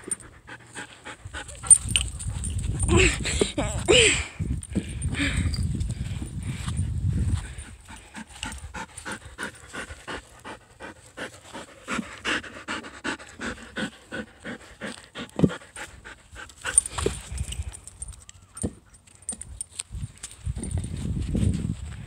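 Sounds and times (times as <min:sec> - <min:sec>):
dog panting: 0:00.0 - 0:03.9, 0:07.4 - 0:17.6.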